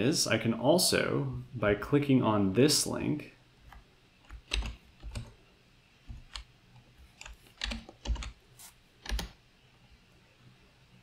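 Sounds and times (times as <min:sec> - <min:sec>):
keyboard keystrokes: 0:03.7 - 0:05.3, 0:07.2 - 0:08.4, 0:09.0 - 0:09.4.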